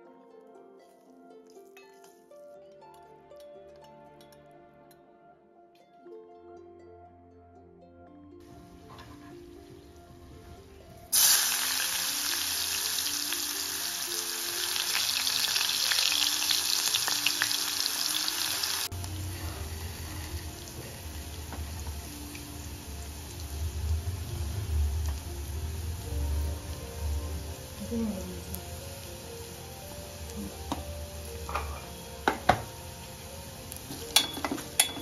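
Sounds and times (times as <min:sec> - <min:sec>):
soft background music: 0:00.0 - 0:35.0
onions sizzling in hot oil: 0:11.1 - 0:35.0.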